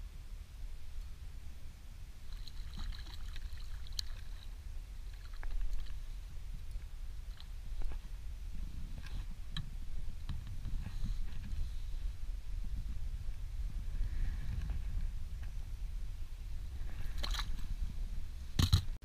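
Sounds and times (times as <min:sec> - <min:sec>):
wind rumble on microphone: 0:00.0 - 0:19.0
water splashing: 0:02.2 - 0:07.9, 0:16.9 - 0:17.8.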